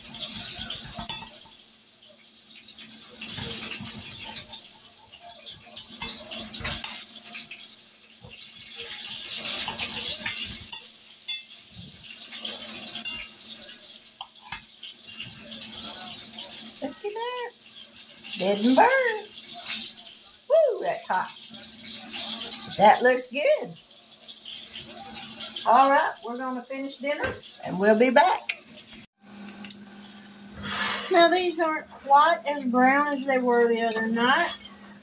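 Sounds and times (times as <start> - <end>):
knife scraping iron skillet: 9.0 - 11.6, 30.5 - 31.8, 32.5 - 35.0.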